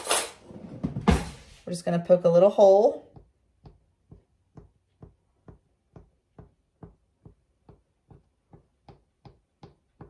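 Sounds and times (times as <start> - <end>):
faint taps poking dough: 3.1 - 10.0.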